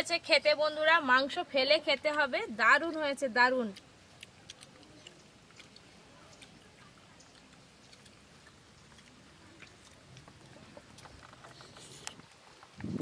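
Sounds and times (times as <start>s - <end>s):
people eating by hand: 0.0s - 13.0s
chewing: 1.8s - 13.0s.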